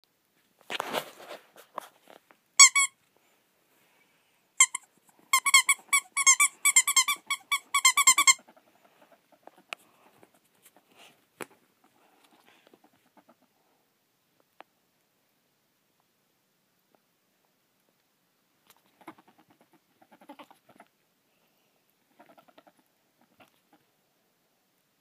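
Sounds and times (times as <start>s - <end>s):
faint rustling: 0.3s - 5.4s, 8.4s - 14.7s
ferret squeaking: 2.6s - 2.9s, 4.6s - 9.6s, 18.8s - 20.9s, 22.1s - 23.8s.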